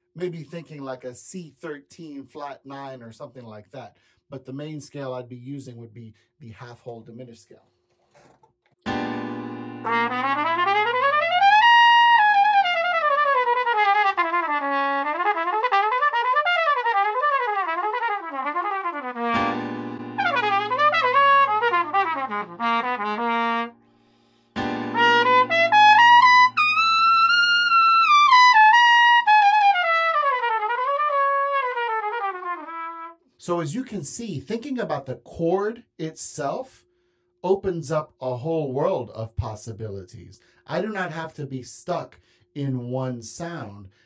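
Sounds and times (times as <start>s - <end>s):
jazz trumpet improvising: 9.3s - 23.8s, 24.8s - 33.3s.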